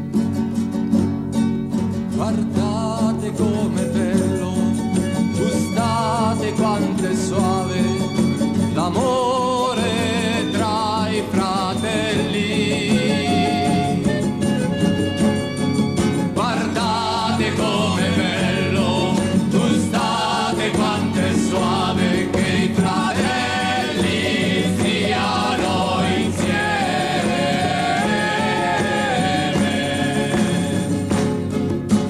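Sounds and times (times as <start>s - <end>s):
instrumental accompaniment: 0.0s - 32.0s
choir singing a hymn: 9.6s - 13.9s, 16.3s - 31.2s.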